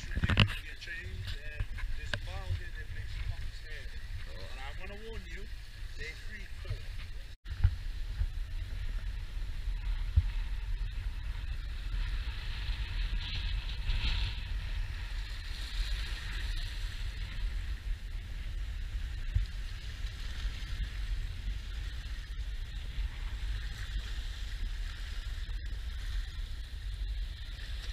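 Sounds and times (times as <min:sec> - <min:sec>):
wind rumbling on microphone: 0:00.0 - 0:27.9.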